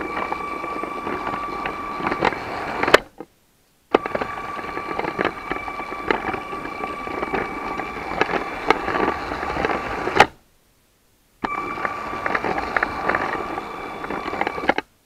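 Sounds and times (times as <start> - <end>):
electric motor whine: 0.0 - 3.1, 3.9 - 10.4, 11.4 - 14.8
toy train wheels clicking: 4.0 - 10.3, 11.5 - 14.8.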